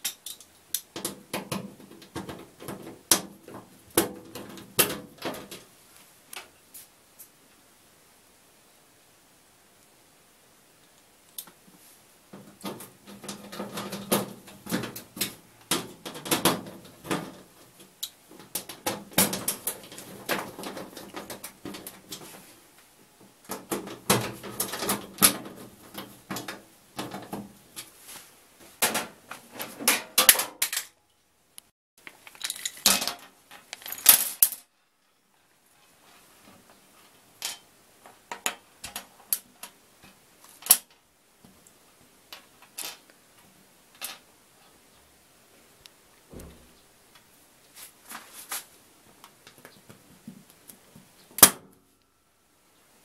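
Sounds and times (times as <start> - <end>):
small metal and plastic parts clinking: 32.0 - 34.7.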